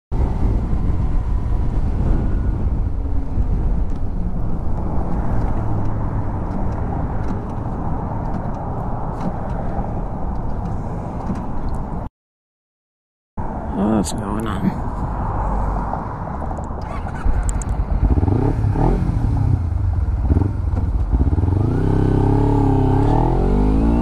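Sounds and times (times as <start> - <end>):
road noise: 0.1 - 12.1, 13.4 - 24.0
wind rushing: 0.1 - 12.1, 14.4 - 22.1.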